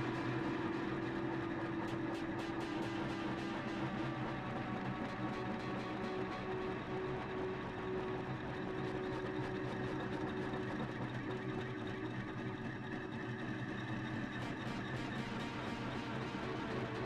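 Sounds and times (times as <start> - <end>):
droning background music: 0.0 - 17.0.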